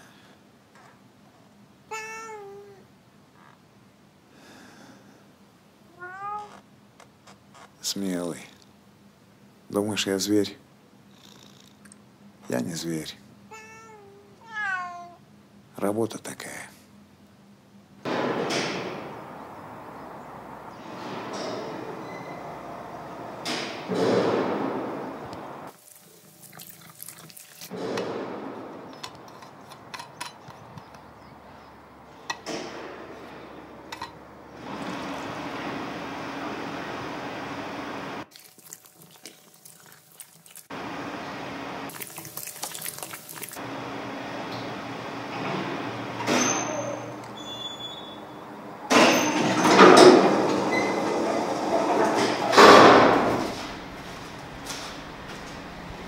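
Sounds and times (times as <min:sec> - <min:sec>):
loud mechanical noise: 0:18.1 - 0:25.7, 0:34.6 - 0:38.2, 0:40.8 - 0:41.9, 0:43.6 - 0:46.5
passenger lift running: 0:18.1 - 0:25.7, 0:32.4 - 0:38.2, 0:43.6 - 0:56.0
liquid pouring into cup: 0:25.8 - 0:27.7, 0:38.3 - 0:40.7, 0:41.9 - 0:43.6.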